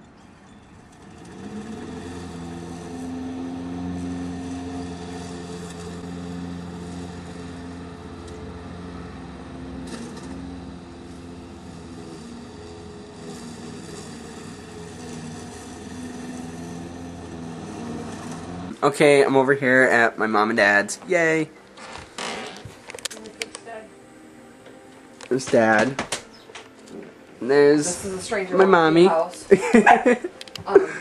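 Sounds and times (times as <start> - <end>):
lawn mower engine running: 0.0 - 31.0.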